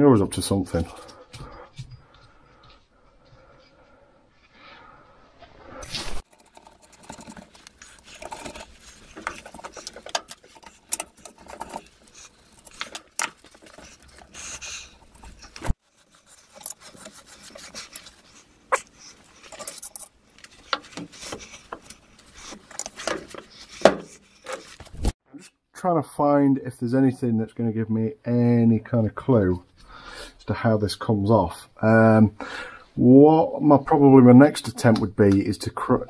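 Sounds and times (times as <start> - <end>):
gloved hands rubbing and rustling: 5.4 - 25.2
small metal clicks and knocks: 6.2 - 24.9.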